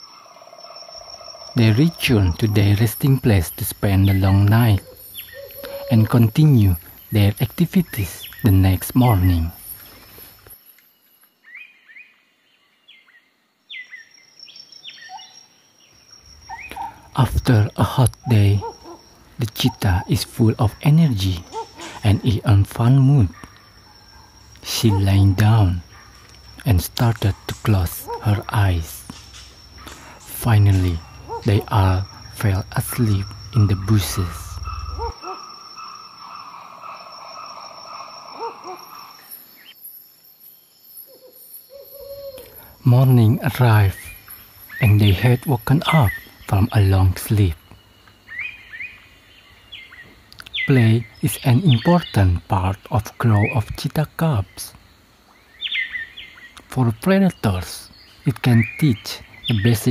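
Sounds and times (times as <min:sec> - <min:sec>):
bird chirps: 0:00.0 - 0:59.9
insect chorus: 0:00.0 - 0:59.9
bird hooting call: 0:04.0 - 0:06.8, 0:16.4 - 0:17.2, 0:18.2 - 0:20.2, 0:21.3 - 0:22.4, 0:27.3 - 0:39.7, 0:41.0 - 0:42.8.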